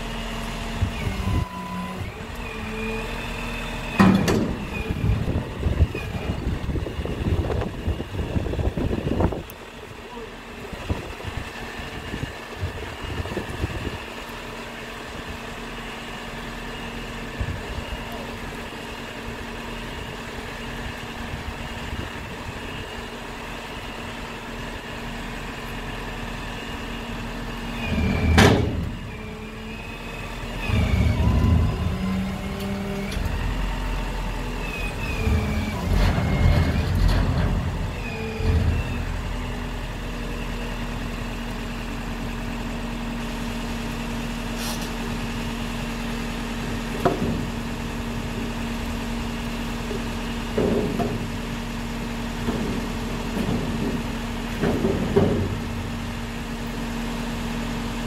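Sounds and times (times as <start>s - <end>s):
diesel truck engine running: 0.0s - 58.0s
metal container clanking and squealing: 27.8s - 29.0s, 34.6s - 39.3s.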